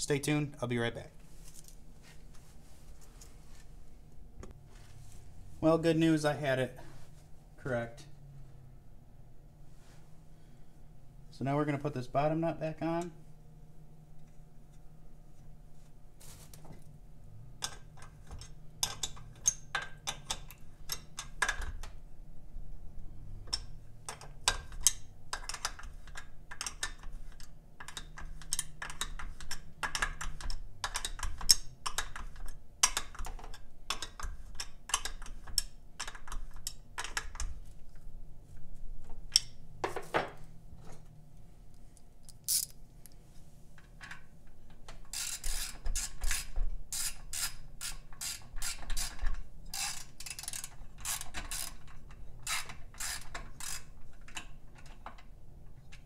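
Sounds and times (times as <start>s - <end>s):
metallic clicks of handled parts: 42.0s - 43.2s, 45.0s - 55.3s.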